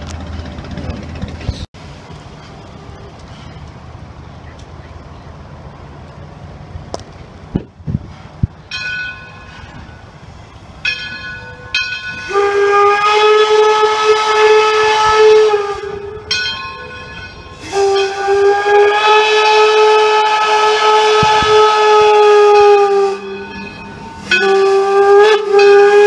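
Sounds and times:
steam whistle blasts: 12.2 - 16.4, 17.5 - 26.0.

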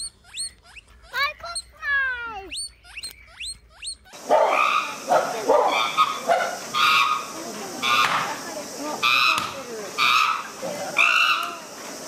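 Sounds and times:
high-pitched animal squeaks: 0.0 - 5.0
rough barking animal calls: 0.0 - 11.7.

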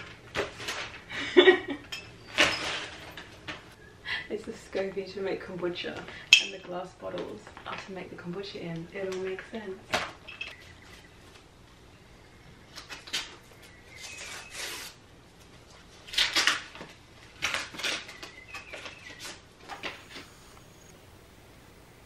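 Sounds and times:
paper rustling and crinkling: 0.0 - 1.1, 7.0 - 10.1, 12.8 - 20.4.

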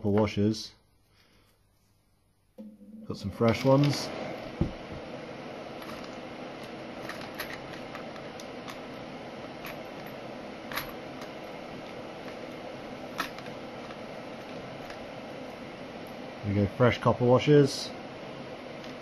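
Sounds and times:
steady background hiss: 0.0 - 19.0
small metal parts clinking: 7.0 - 8.8.

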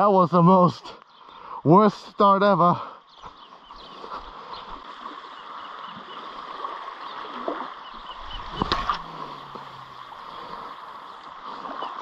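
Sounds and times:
water lapping against rock: 4.0 - 12.0.

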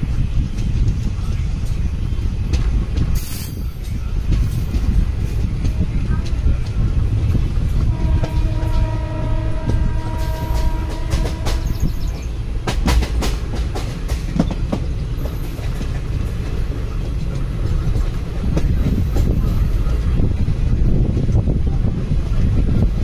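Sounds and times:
wheels clacking over rail joints: 0.0 - 21.5
train coach rumbling: 0.0 - 23.0
train horn: 7.8 - 12.2.

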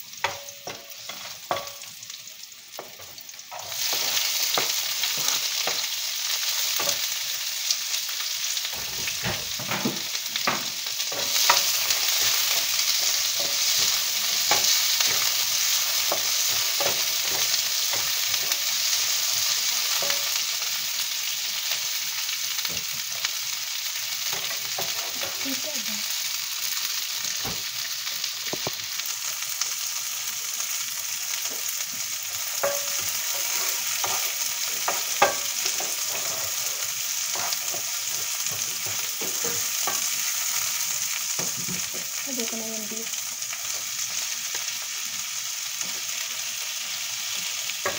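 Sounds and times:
vegetables sizzling in a frying pan: 0.0 - 47.9
wooden spatula scraping a pan: 32.6 - 40.0.

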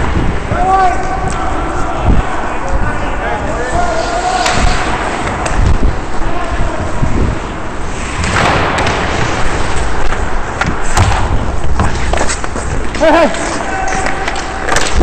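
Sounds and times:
microphone movement rumble: 0.0 - 13.1
hockey sticks and puck clacking: 4.0 - 6.6, 8.0 - 15.0
skate blades scraping ice: 11.6 - 15.0.

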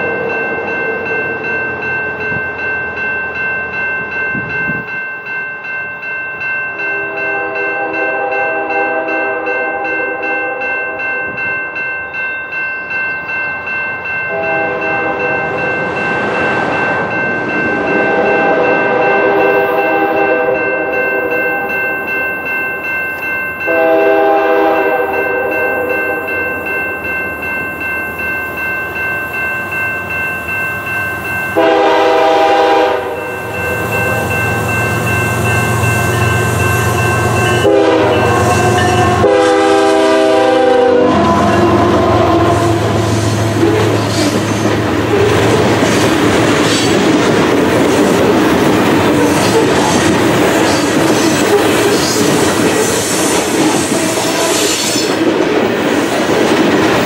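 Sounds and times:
crossing warning bell ringing: 0.0 - 57.0
locomotive horn blasts: 6.9 - 11.4, 14.3 - 15.7, 17.8 - 21.7, 23.7 - 26.4, 31.6 - 33.2, 37.2 - 44.0.

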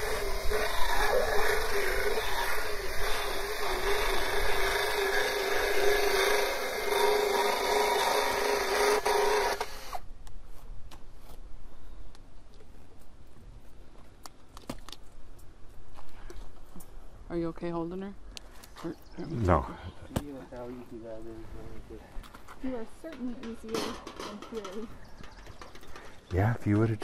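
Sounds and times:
motorized dental float grinding: 0.0 - 10.0.

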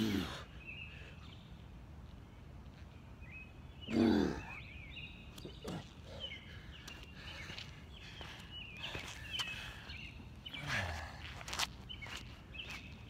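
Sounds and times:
man grunting: 0.0 - 0.4
faint high chirping calls: 11.8 - 13.0.

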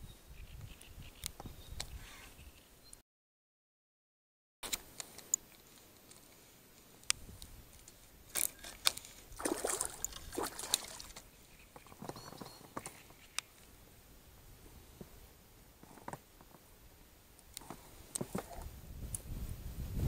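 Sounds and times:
water sloshing in boat: 8.3 - 11.3.

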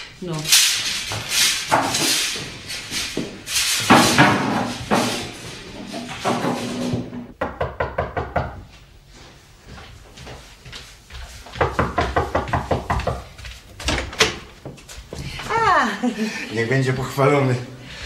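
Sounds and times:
knocking on wooden door: 7.4 - 8.6, 11.6 - 13.3.

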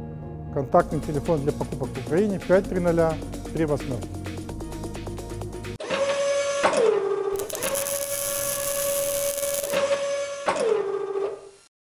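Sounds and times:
hissing burst: 7.4 - 9.9
robot arm motor whine: 7.4 - 11.7.

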